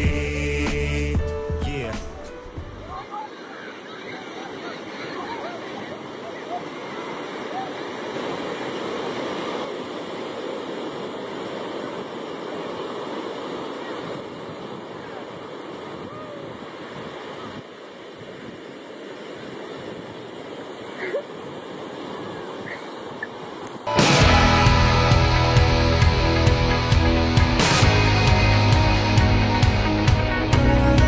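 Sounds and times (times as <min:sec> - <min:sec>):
ocean surf breaking: 0:01.8 - 0:31.0
faint shouts of people: 0:15.9 - 0:16.6.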